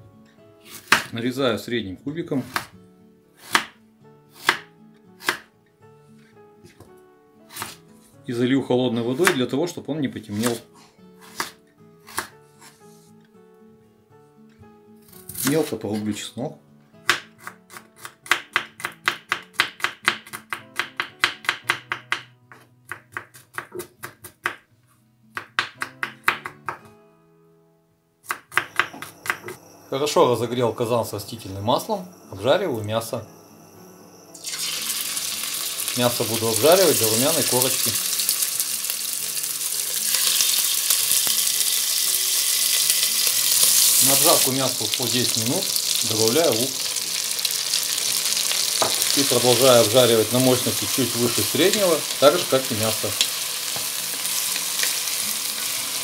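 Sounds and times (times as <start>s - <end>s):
knife chopping on wooden board: 0.7s - 1.1s, 3.4s - 3.8s, 4.4s - 5.5s, 7.5s - 7.8s, 11.2s - 12.8s, 17.0s - 24.6s, 25.4s - 26.8s, 28.3s - 29.6s
meat sizzling in hot oil: 34.4s - 56.0s.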